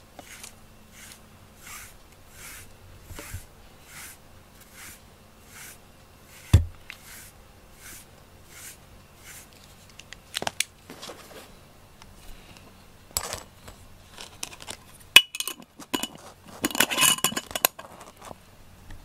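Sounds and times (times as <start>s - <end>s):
glass jar rattling and scraping: 13.2s - 18.4s.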